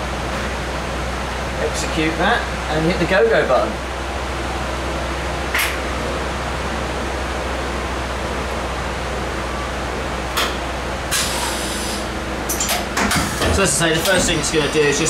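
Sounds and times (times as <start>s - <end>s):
machine low hum: 0.0s - 15.0s
short hisses: 11.2s - 12.1s.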